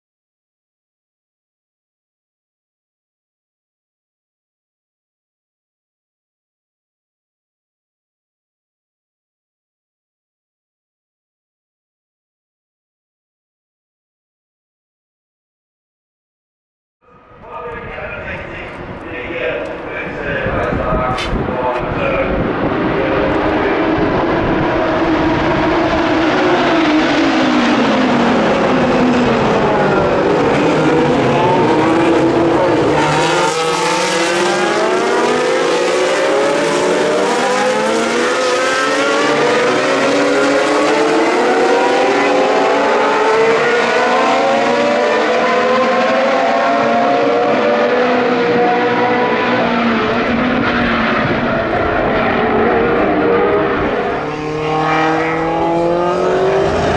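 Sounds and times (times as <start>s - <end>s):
race car engines: 17.0s - 56.9s.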